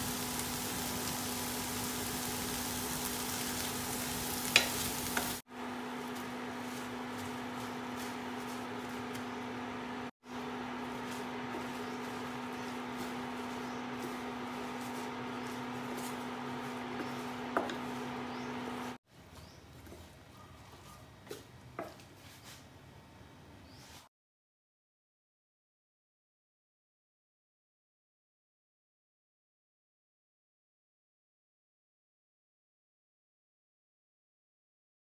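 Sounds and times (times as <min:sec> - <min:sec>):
food sizzling in a frying pan: 0:00.0 - 0:05.4.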